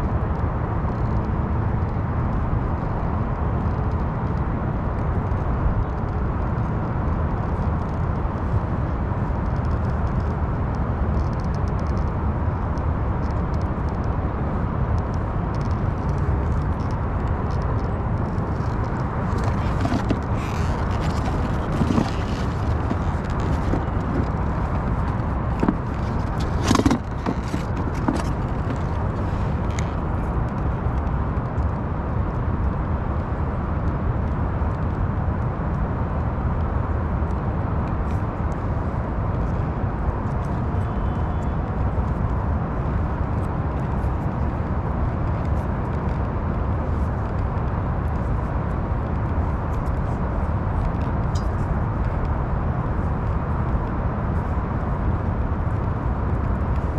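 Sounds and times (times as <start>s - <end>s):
wind buffeting microphone: 0.0s - 56.9s
clicks and scrapes of wires: 14.9s - 31.7s.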